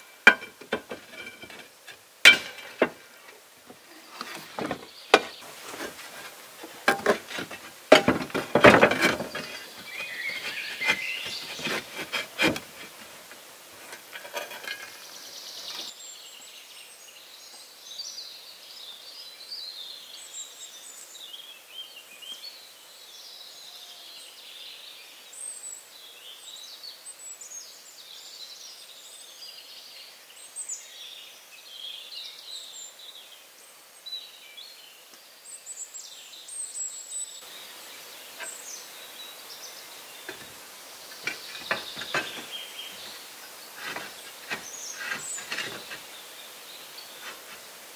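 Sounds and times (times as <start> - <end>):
birds singing: 0.0 - 13.0, 13.6 - 47.9
knocks and thumps on wood: 4.3 - 9.8.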